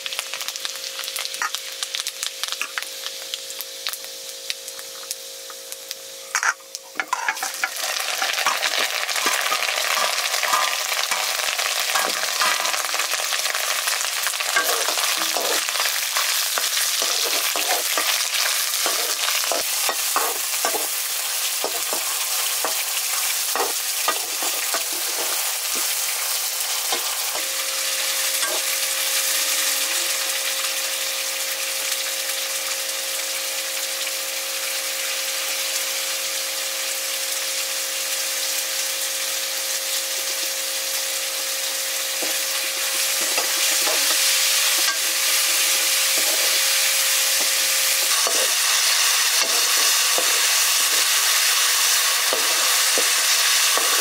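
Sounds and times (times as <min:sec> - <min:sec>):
curry sizzling in pan: 0:00.0 - 0:54.0
spoon scraping pan: 0:06.4 - 0:13.2, 0:14.5 - 0:26.0, 0:28.4 - 0:28.7, 0:42.2 - 0:54.0.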